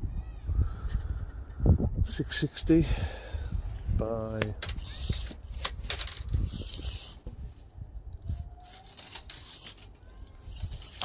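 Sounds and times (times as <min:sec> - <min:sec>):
handling noise rubbing: 0:04.3 - 0:11.0.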